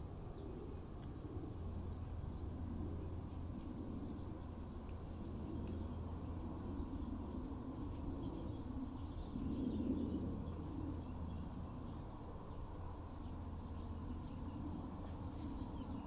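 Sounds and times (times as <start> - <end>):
steady low rumble: 0.0 - 16.0.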